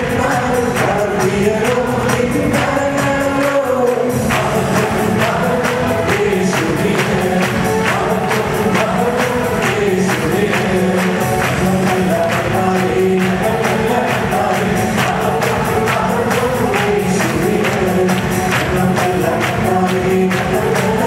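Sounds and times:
group singing worship music: 0.0s - 21.0s.

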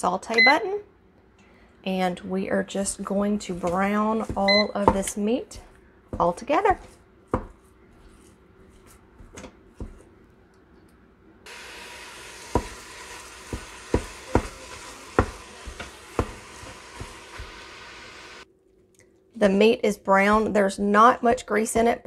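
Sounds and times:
wooden spoon knocking on pot: 3.6s - 5.2s, 12.5s - 12.8s, 13.4s - 17.6s
meat sizzling in a pot: 11.5s - 18.4s.

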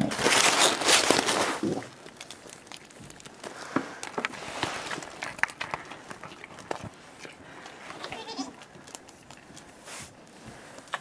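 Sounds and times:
goat bleating: 8.0s - 8.6s.

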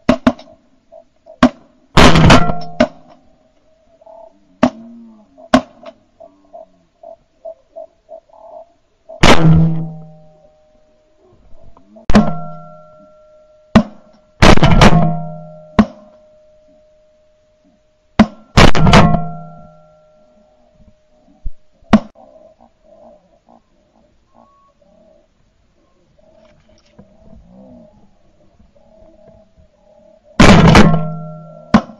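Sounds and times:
shotgun shots: 1.4s - 3.1s, 9.2s - 10.2s, 12.1s - 12.7s, 13.8s - 16.1s, 18.2s - 19.7s, 30.4s - 31.9s.

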